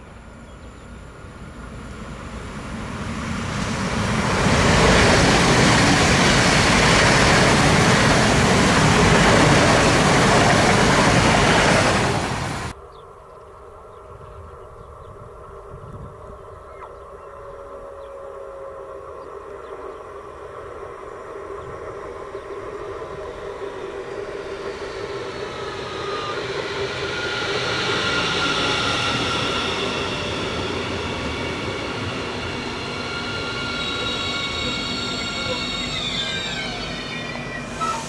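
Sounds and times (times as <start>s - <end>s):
train wheel-on-rail rumble: 0.0s - 12.8s, 14.8s - 38.0s
electric traction whine: 19.7s - 38.0s.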